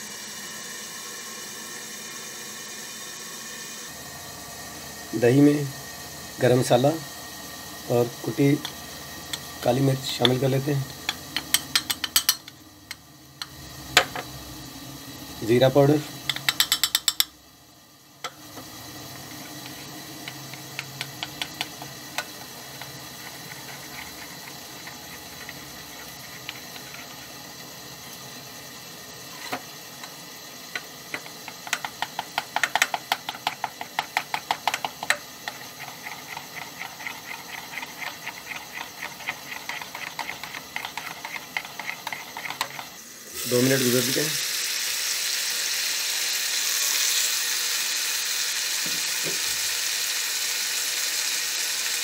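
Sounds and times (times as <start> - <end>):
metal spoon clinking against bowl: 11.4 - 12.6, 16.3 - 17.4
steady hiss: 41.2 - 52.0.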